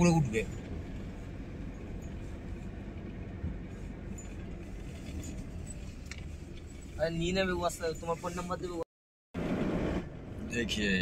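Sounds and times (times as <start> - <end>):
vehicle engine and road rumble: 0.0 - 11.0.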